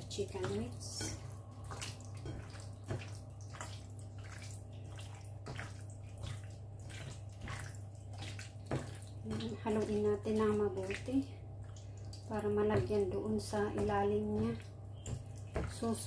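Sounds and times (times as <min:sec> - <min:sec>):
steady low hum: 0:00.0 - 0:16.0
wet squelching of kneaded meat: 0:00.0 - 0:16.0.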